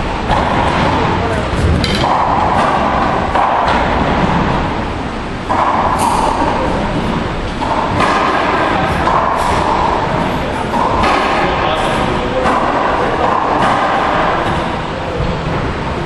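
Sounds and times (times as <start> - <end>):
steady background noise: 0.0 - 16.0
knocks and thuds in a court: 5.5 - 15.7.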